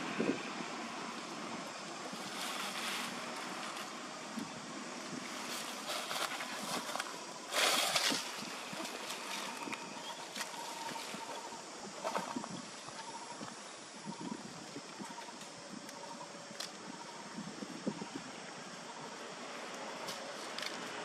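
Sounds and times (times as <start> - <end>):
wind-like hiss: 0.0 - 21.0
loud rustle: 2.1 - 4.1, 5.1 - 11.3.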